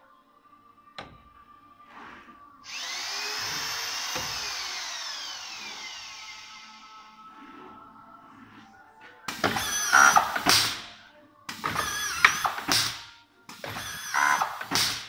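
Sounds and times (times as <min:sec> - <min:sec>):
click: 0:01.0 - 0:01.2
drill motor whining: 0:02.6 - 0:07.4, 0:09.4 - 0:10.8, 0:13.6 - 0:15.0.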